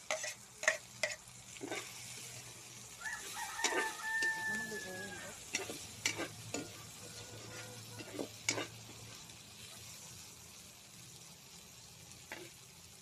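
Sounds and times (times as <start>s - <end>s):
stirring scrapes against pan: 0.0s - 10.1s
food sizzling in a wok: 0.0s - 13.0s.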